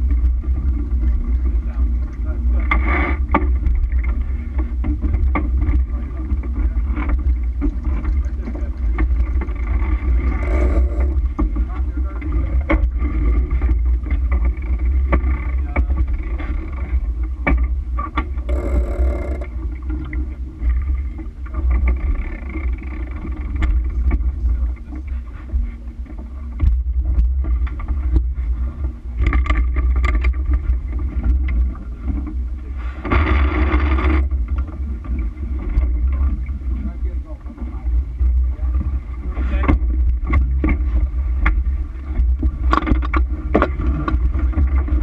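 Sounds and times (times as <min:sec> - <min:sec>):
water rushing along hull: 0:00.0 - 0:45.0
wind rumbling on microphone: 0:00.0 - 0:45.0
deck gear clicking and knocking: 0:04.8 - 0:20.1, 0:39.6 - 0:45.0.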